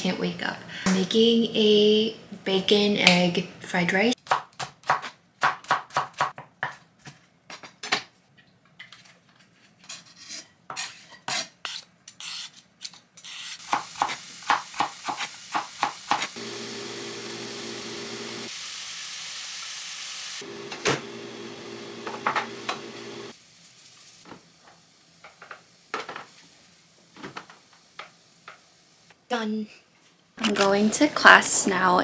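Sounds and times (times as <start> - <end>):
food sizzling in frying pan: 13.6 - 29.2.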